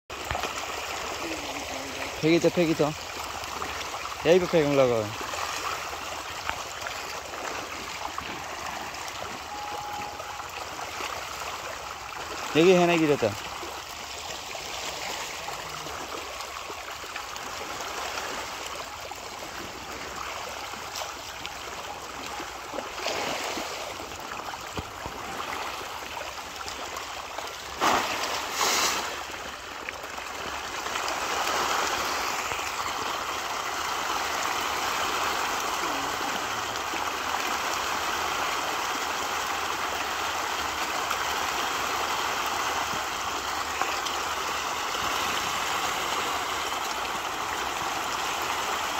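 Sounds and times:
fish splashing at water surface: 13.4s - 33.0s.

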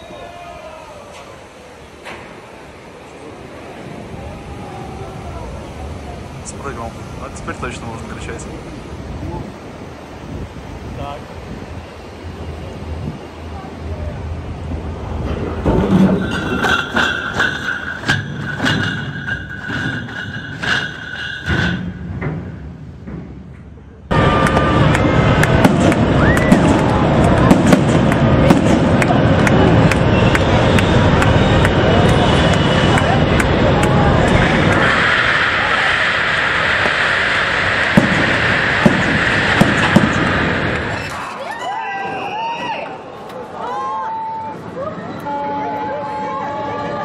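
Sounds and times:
steady high squeal: 15.3s - 22.7s, 29.1s - 44.1s
heavy chains clanking and rattling: 15.4s - 22.6s
sharp cracks: 33.0s - 41.2s.

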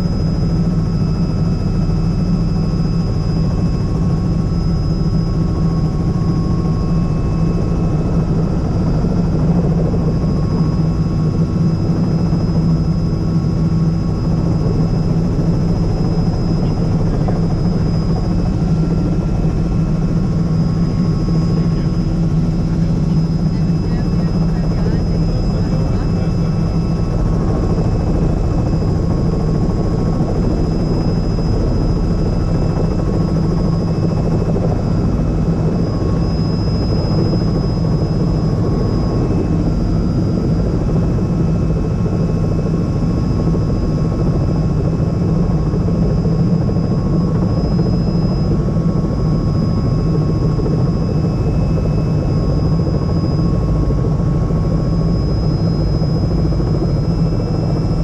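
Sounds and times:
helicopter engine and rotor running: 0.0s - 58.0s.

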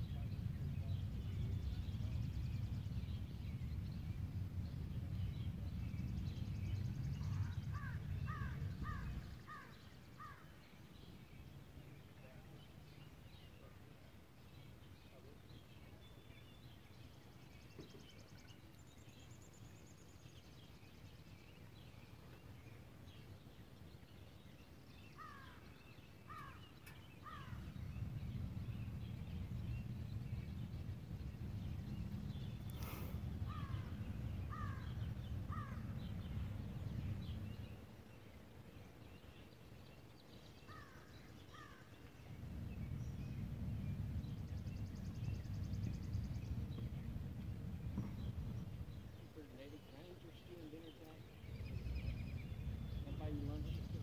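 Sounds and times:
low rumble: 0.0s - 9.5s, 27.1s - 39.7s, 40.5s - 54.0s
faint chirps: 24.2s - 54.0s.

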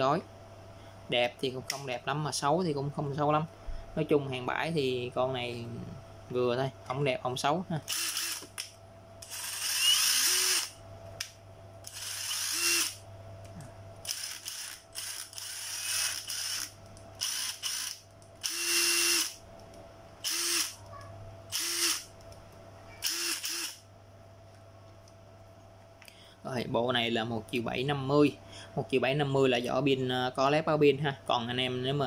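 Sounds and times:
cordless drill motor whine: 7.9s - 8.6s, 9.2s - 10.8s, 11.8s - 13.0s, 14.0s - 19.4s, 20.2s - 20.8s, 21.5s - 22.1s, 23.0s - 23.8s.

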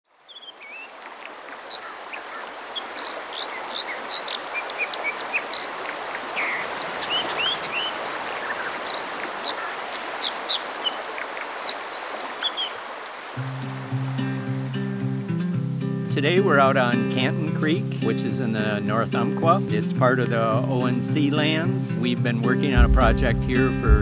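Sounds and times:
small birds chirping: 0.1s - 15.3s
creek water rushing: 0.1s - 21.8s.

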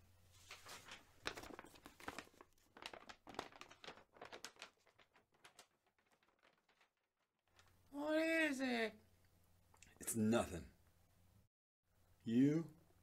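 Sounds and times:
paper envelope crinkling: 0.3s - 7.9s.

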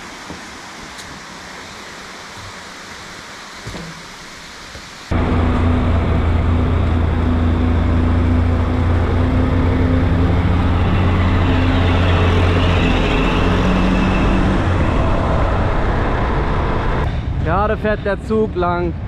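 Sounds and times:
road and wind noise: 0.0s - 19.0s.

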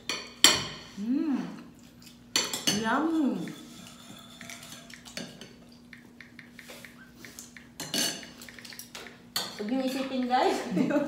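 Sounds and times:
steady hum: 0.0s - 11.0s
cutlery clinking on plates: 2.4s - 5.7s, 6.6s - 10.4s.

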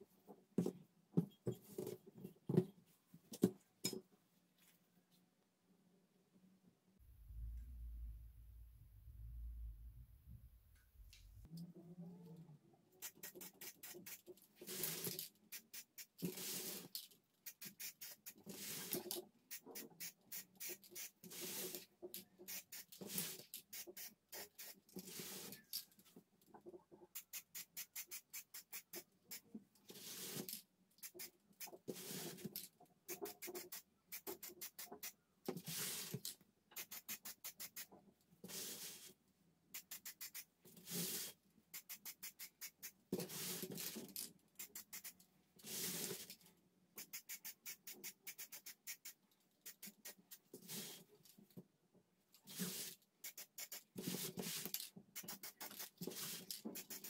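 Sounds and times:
spray can hissing: 13.0s - 21.8s, 22.5s - 25.5s, 27.2s - 29.1s, 31.0s - 32.3s, 33.1s - 35.1s, 36.8s - 37.9s, 39.8s - 43.9s, 44.6s - 46.2s, 47.0s - 50.8s, 52.6s - 57.0s
spray can rattling: 13.0s - 25.7s, 27.1s - 29.4s, 30.0s - 37.9s, 39.7s - 46.3s, 47.0s - 50.8s, 52.5s - 57.0s.

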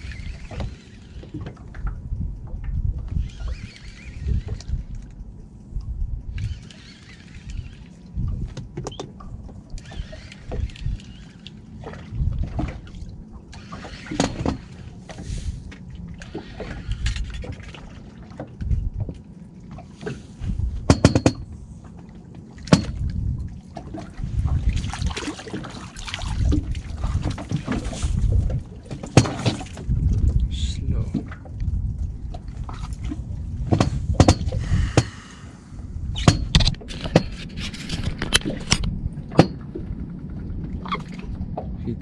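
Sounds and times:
water sloshing against boat hull: 0.0s - 42.0s
low rumble: 1.6s - 3.4s, 4.2s - 6.6s, 29.8s - 36.8s
sharp knocks: 20.9s - 21.5s.

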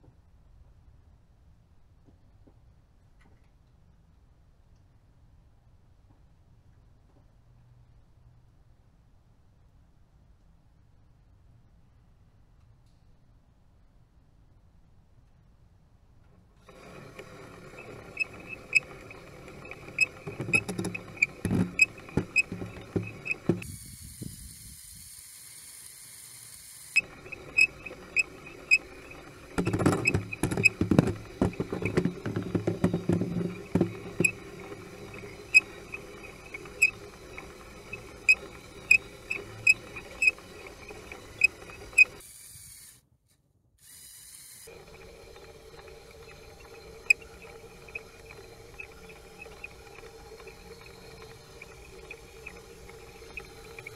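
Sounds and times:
steady mechanical hum: 16.0s - 43.0s, 43.8s - 53.9s
knocking and scraping: 16.7s - 23.6s, 27.0s - 42.2s.

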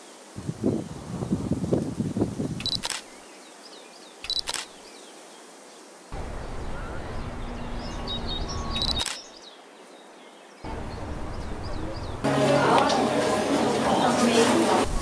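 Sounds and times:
camera shutter clicks: 2.6s - 3.1s, 4.2s - 4.8s, 8.8s - 9.3s
low outdoor hum: 6.2s - 9.2s, 10.7s - 15.0s
faint high chirps: 6.3s - 9.3s.

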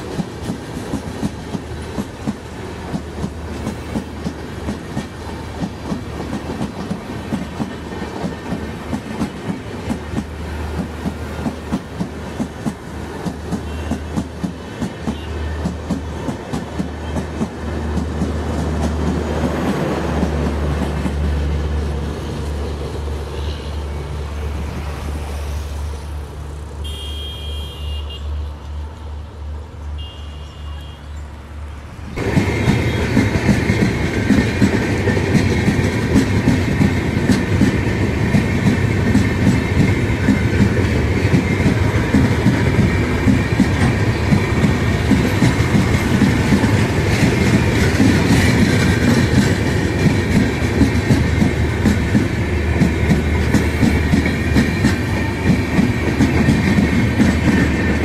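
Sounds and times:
train wheels clicking over rail joints: 0.0s - 23.2s, 32.1s - 58.0s
short high train horn toots: 13.6s - 14.1s, 26.8s - 28.4s, 30.0s - 31.1s
rumble and clatter of coach wheels: 32.1s - 58.0s.

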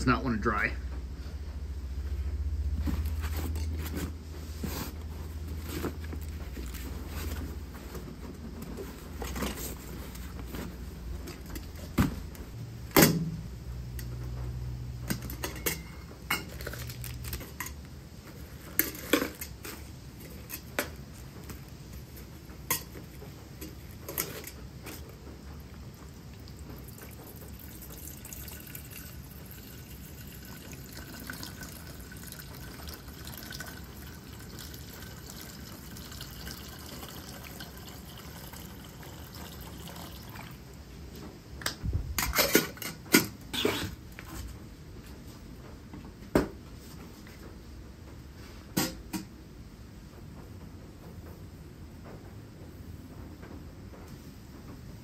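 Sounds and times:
water pouring into kettle: 26.0s - 40.7s.

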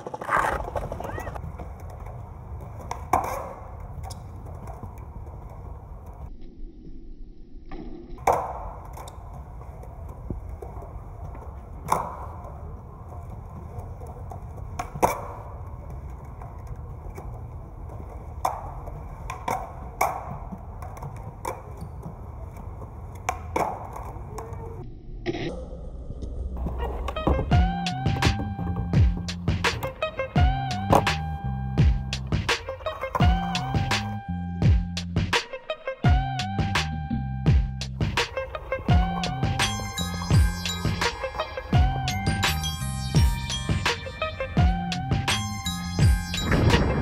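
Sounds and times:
skateboard clacking: 0.0s - 6.2s, 8.2s - 24.8s, 26.6s - 31.4s, 32.2s - 34.2s, 38.0s - 40.0s, 40.8s - 42.5s
skateboard wheels rolling on stone: 0.0s - 6.3s, 8.2s - 24.8s, 26.5s - 34.2s, 37.9s - 42.7s.

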